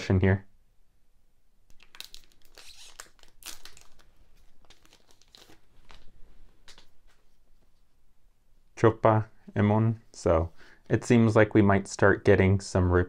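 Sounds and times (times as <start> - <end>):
wrapper being torn and crinkled: 1.7 - 6.9.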